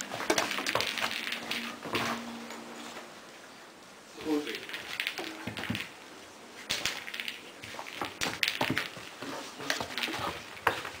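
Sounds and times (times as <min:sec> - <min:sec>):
ball taps and clicks: 0:04.6 - 0:06.0, 0:06.7 - 0:11.0.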